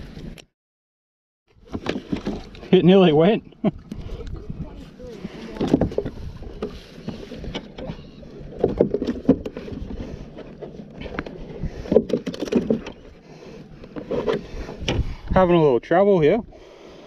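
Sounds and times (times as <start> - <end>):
knocks and bumps on plastic kayak: 8.6 - 9.9.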